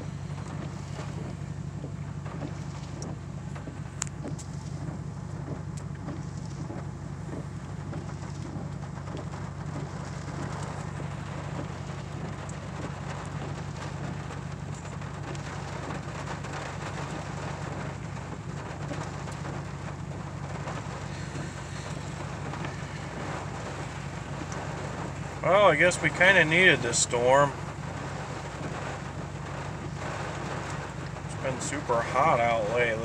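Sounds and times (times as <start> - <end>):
rain on truck windshield and roof: 0.0 - 33.0
truck engine humming: 0.0 - 33.0.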